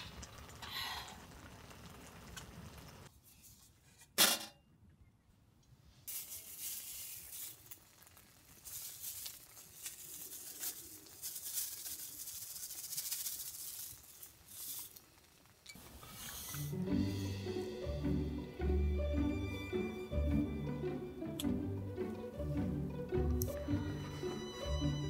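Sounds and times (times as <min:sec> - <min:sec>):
dried seaweed crinkling and rustling: 0:06.1 - 0:15.5.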